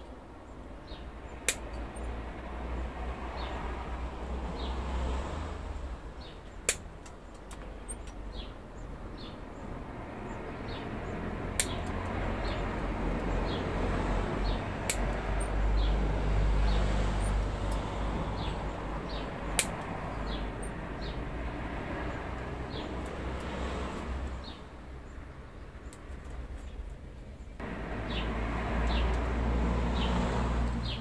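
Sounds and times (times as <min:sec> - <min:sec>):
small birds chirping: 0:00.0 - 0:03.8, 0:04.5 - 0:05.0, 0:05.8 - 0:31.0
motor vehicle passing: 0:00.9 - 0:07.0, 0:08.2 - 0:31.0
sharp clicks: 0:06.6 - 0:08.2, 0:11.5 - 0:12.2, 0:14.8 - 0:15.6, 0:19.1 - 0:20.0.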